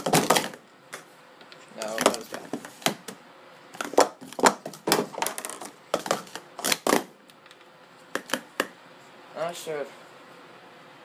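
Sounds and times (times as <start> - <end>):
plastic cups clacking: 0.0 - 0.6, 1.8 - 3.1, 3.8 - 7.1.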